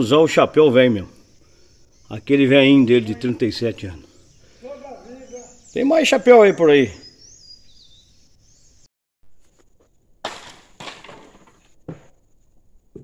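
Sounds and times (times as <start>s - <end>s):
faint bird chirps: 0.0s - 8.9s.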